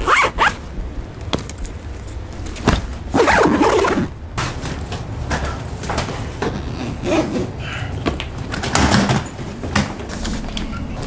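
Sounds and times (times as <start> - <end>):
luggage zipper being pulled: 0.0 - 0.6, 3.1 - 4.1, 6.4 - 7.5
bags knocking and rustling: 1.3 - 6.7.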